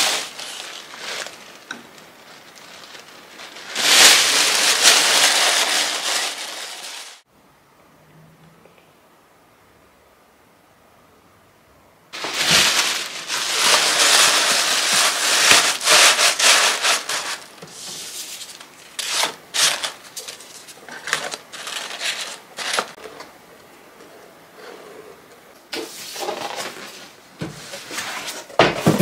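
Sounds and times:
tissue paper rustling: 0.0 - 7.2, 12.2 - 23.0.

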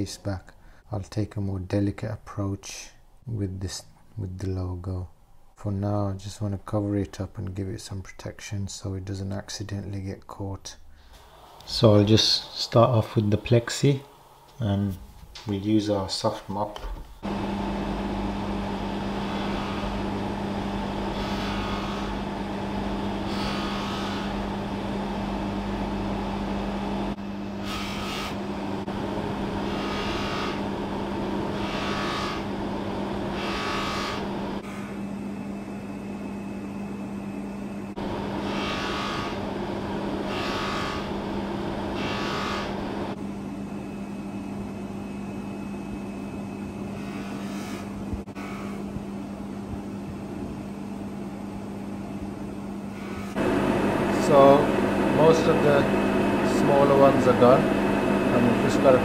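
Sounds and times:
hissing buffing brush: 17.2 - 34.9, 38.0 - 43.2, 53.0 - 59.0
polishing motor running: 17.2 - 35.1, 37.9 - 43.2, 46.9 - 48.8, 53.0 - 59.0.

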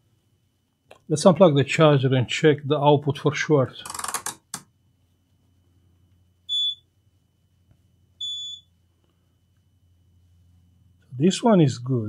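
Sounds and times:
multimeter beeping: 6.5 - 6.8, 8.2 - 8.7.

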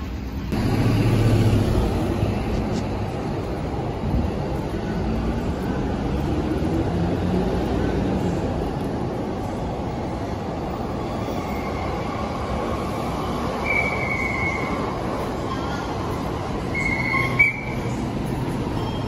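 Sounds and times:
street hubbub: 0.0 - 19.0
train wheels squealing on rails: 9.4 - 19.0.

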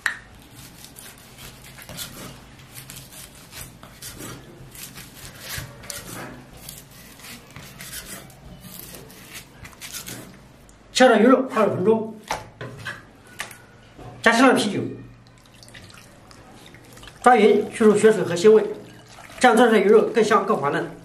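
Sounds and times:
cleaver scraping on chopping block: 0.6 - 10.4.

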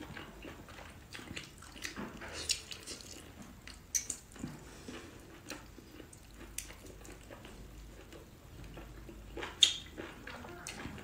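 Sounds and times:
wet chewing: 0.0 - 11.0.

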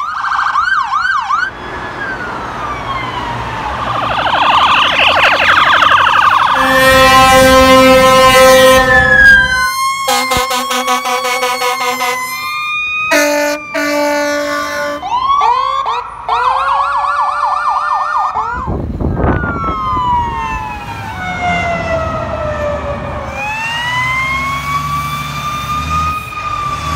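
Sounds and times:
wail siren: 0.0 - 26.9
yelp siren: 0.0 - 26.9
truck engine rumbling: 1.0 - 26.9
short horn blasts: 6.6 - 12.5, 13.1 - 15.0.

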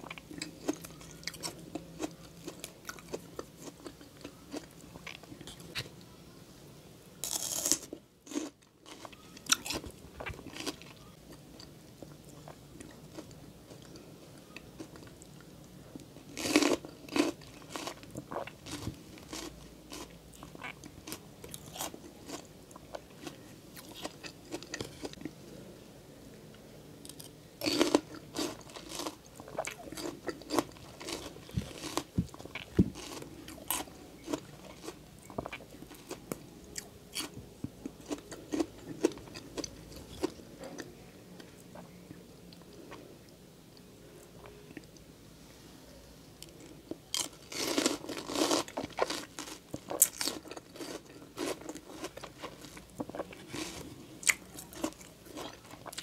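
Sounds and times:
crunchy fruit bites: 16.3 - 22.4, 27.1 - 36.2.

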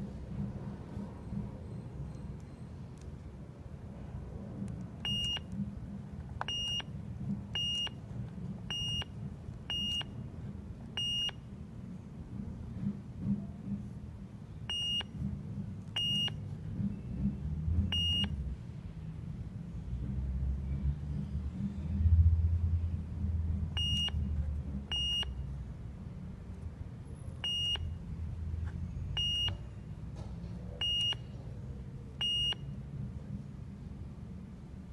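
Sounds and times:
short high keypad beeps: 5.0 - 5.5, 6.5 - 6.9, 9.7 - 10.1.

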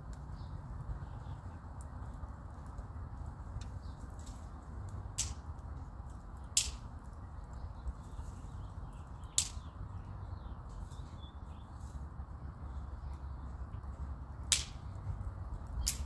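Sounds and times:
low steady rumble: 0.0 - 16.0
twigs crackling in a stove: 0.0 - 16.0
sharp pops: 6.5 - 6.8, 14.5 - 14.8.

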